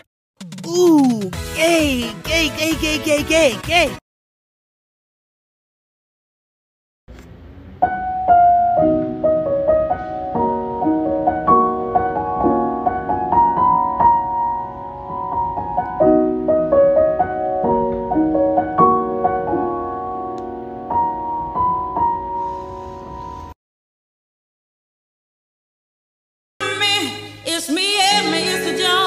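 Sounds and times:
solo piano melody: 7.8s - 23.5s.

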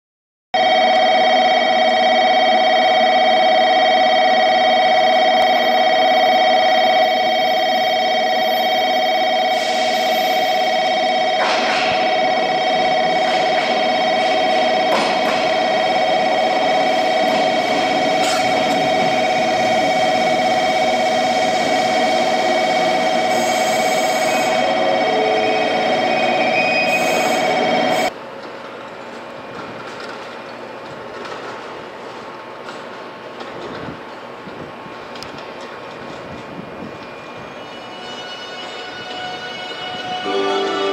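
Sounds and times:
loud ringing tone: 0.6s - 28.1s
electric train running: 0.6s - 28.2s.

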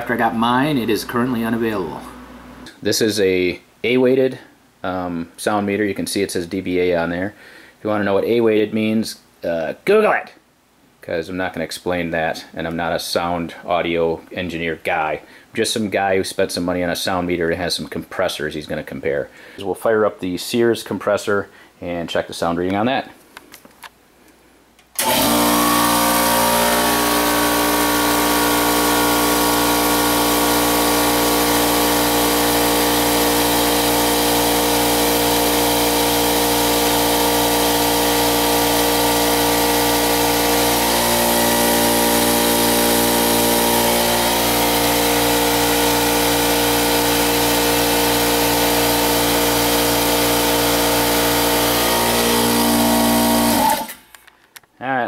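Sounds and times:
air compressor running: 0.0s - 2.7s, 25.0s - 54.0s.

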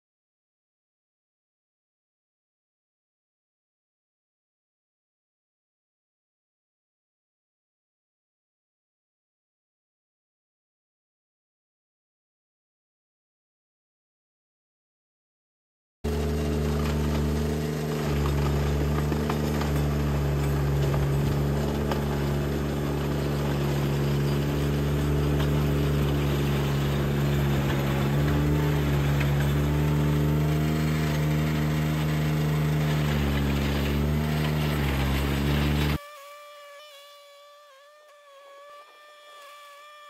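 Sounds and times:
rotor grinding into gravel: 16.1s - 36.0s
tractor engine running: 16.1s - 36.0s.

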